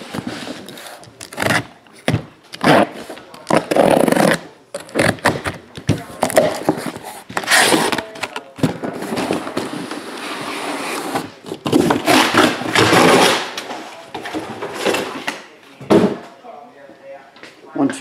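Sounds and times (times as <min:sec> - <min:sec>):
cardboard boxes scraping: 0:00.0 - 0:01.7, 0:06.2 - 0:13.6
tape tearing from cardboard: 0:00.6 - 0:01.7, 0:02.5 - 0:05.6, 0:07.3 - 0:08.3, 0:10.6 - 0:13.7.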